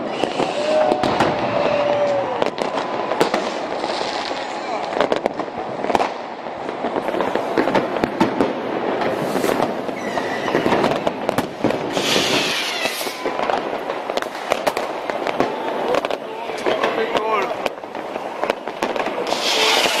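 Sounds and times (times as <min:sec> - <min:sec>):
fireworks crackling and banging: 0:00.0 - 0:20.0
brief hiss: 0:11.9 - 0:13.2.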